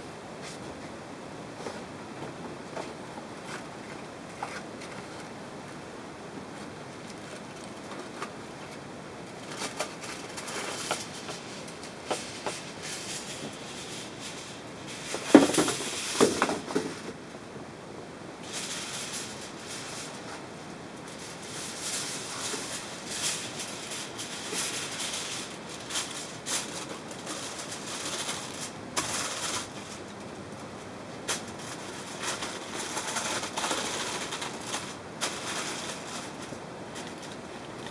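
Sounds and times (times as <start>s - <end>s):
aluminium foil crinkling and tearing: 9.4s - 16.8s, 18.4s - 20.4s, 21.0s - 30.3s, 31.2s - 37.9s.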